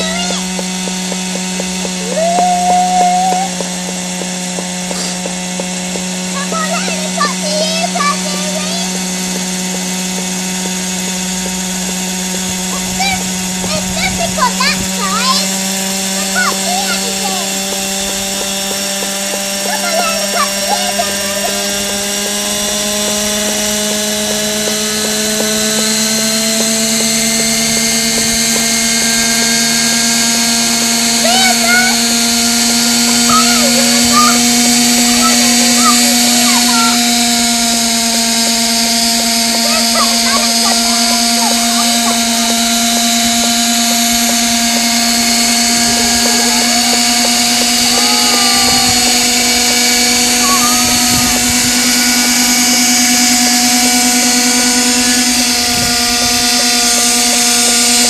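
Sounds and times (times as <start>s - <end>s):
model helicopter engine running: 0.0s - 58.0s
rotors spinning: 0.0s - 58.0s.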